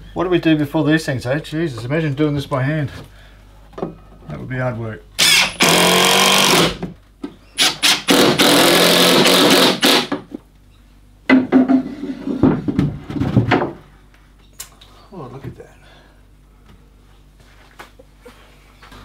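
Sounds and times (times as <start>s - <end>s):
cordless drill driving screws: 5.2s - 6.8s, 7.6s - 10.1s
knocks and scrapes: 11.3s - 13.9s.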